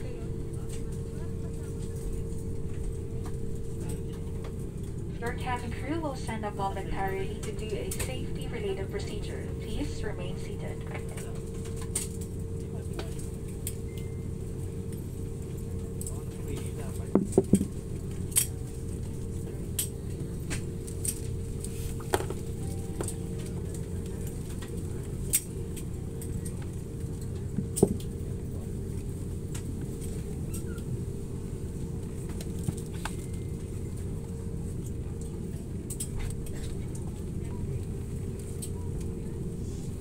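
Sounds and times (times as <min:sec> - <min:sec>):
aircraft cabin hum: 0:00.0 - 0:40.0
clicks and clinks in cabin: 0:07.3 - 0:08.3, 0:10.8 - 0:14.2, 0:14.8 - 0:30.9, 0:32.1 - 0:39.2.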